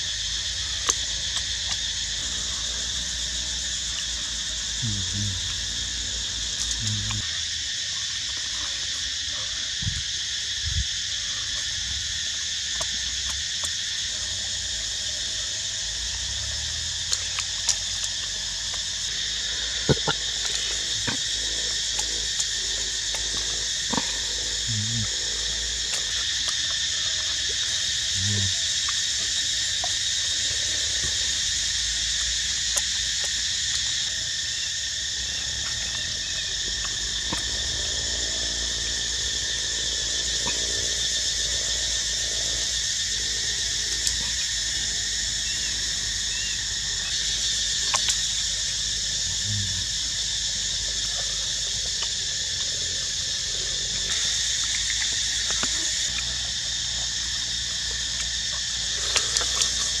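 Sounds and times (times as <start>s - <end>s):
insect chorus drone: 0.0s - 60.0s.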